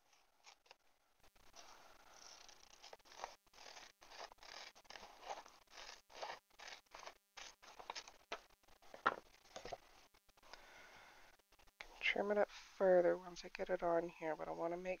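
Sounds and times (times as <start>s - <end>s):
scissors cutting paper: 2.2s - 8.2s.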